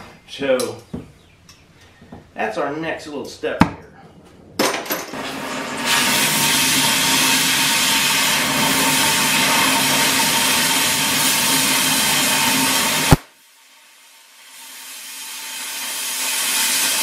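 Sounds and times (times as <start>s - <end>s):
cutting torch hissing: 5.2s - 17.0s.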